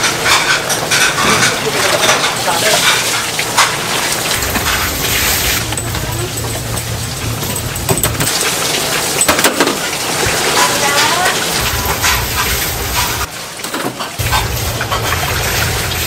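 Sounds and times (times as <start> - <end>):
water splashing and streaming: 2.4 - 16.0.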